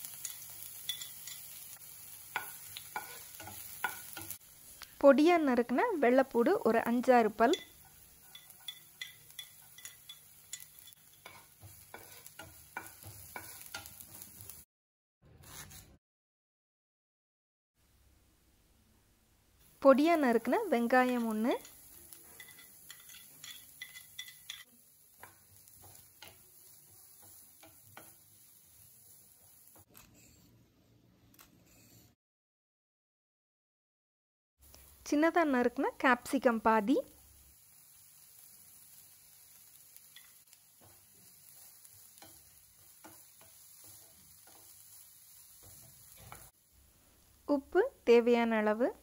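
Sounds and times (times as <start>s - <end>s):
vegetables sizzling in oil: 0.0s - 14.7s, 19.6s - 29.9s, 34.6s - 49.0s
spatula scraping pan: 2.3s - 4.4s, 7.5s - 14.6s, 21.0s - 28.3s, 40.2s - 46.6s
wooden spatula scraping pan: 10.5s - 14.3s.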